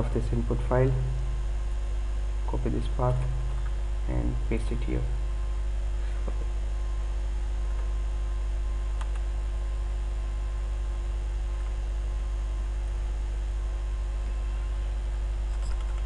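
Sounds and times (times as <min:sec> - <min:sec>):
low electrical hum: 0:00.0 - 0:16.0
faint mouse clicks: 0:09.0 - 0:09.3.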